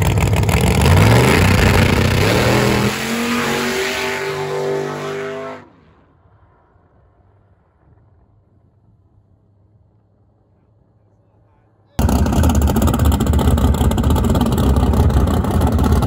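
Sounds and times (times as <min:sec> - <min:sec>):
race car engine accelerating: 0:00.0 - 0:05.7.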